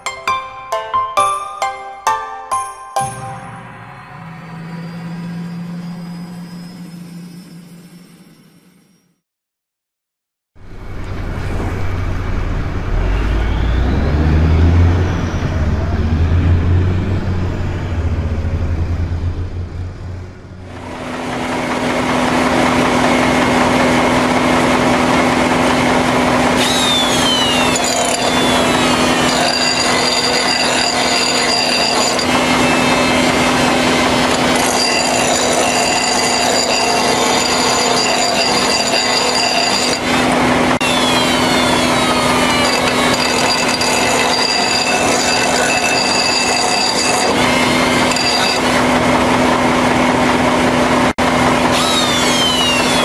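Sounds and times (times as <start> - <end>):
die grinder whining: 20.6 - 53.0
grinding stone on steel blade: 26.8 - 40.4, 41.6 - 48.9.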